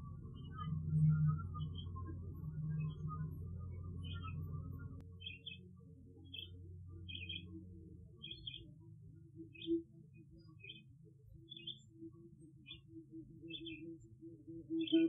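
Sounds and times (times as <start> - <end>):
low steady hum: 0.0 - 5.4.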